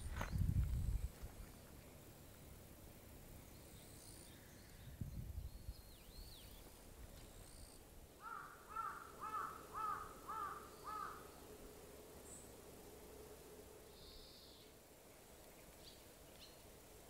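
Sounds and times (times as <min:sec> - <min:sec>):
crow cawing: 0:08.2 - 0:11.3.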